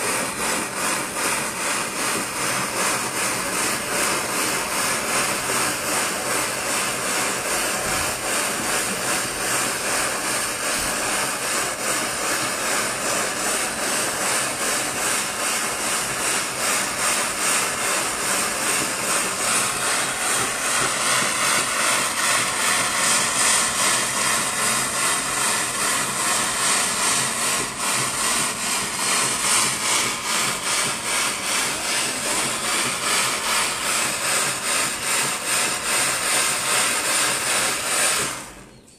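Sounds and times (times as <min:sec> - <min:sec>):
gas torch hissing flame: 0:00.0 - 0:38.8.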